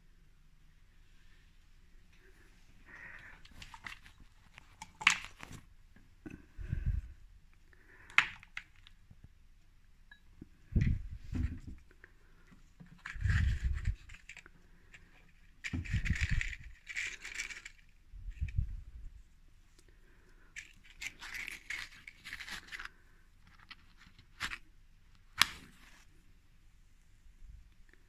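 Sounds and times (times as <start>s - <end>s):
metal candle cups scraping and rattling: 13.0s - 18.6s, 20.5s - 24.6s.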